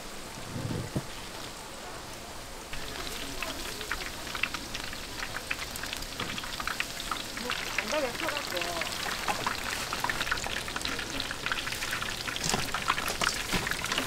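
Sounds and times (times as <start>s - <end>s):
food deep-frying in hot oil: 0.0s - 14.0s.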